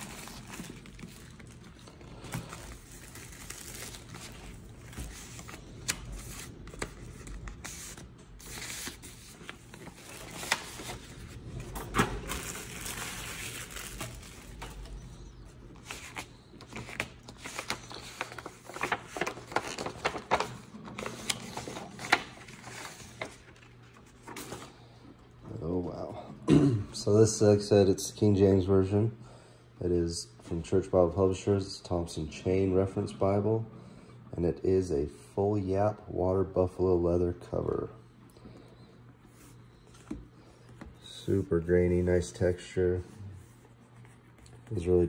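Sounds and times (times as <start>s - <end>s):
plastic wrap crinkling: 0.0s - 24.8s
paper sleeve rustling and sliding: 0.0s - 24.9s.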